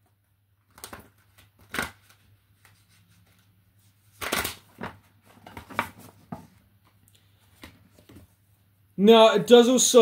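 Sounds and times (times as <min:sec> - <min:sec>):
cards being shuffled: 0:00.6 - 0:06.5.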